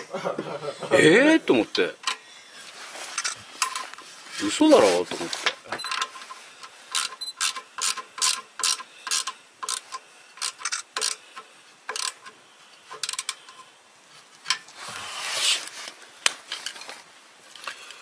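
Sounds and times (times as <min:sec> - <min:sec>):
wrench clicking on metal: 0:06.9 - 0:13.6.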